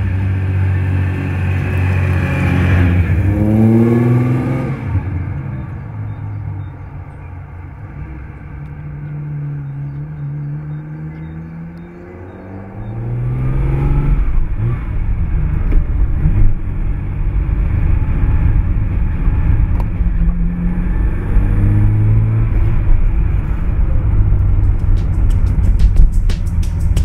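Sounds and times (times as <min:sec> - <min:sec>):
car engine accelerating: 0:00.0 - 0:27.0
steady drum beat: 0:24.5 - 0:27.0.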